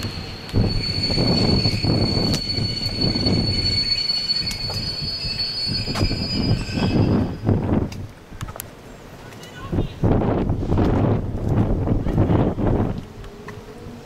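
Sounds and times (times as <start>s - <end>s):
train wheels squealing: 0.0s - 7.7s
train wheels rumbling: 0.0s - 14.0s.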